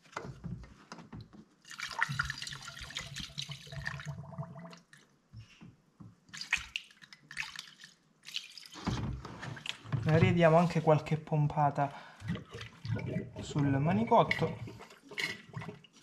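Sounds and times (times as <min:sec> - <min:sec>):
liquid pouring and gurgling: 0:01.7 - 0:05.0, 0:12.2 - 0:16.0.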